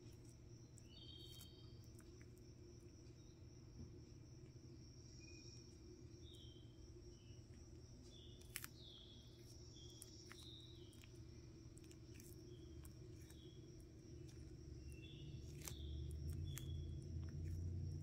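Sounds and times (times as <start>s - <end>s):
steady low hum: 0.0s - 18.0s
tortoise tearing lettuce crackles: 8.0s - 18.0s.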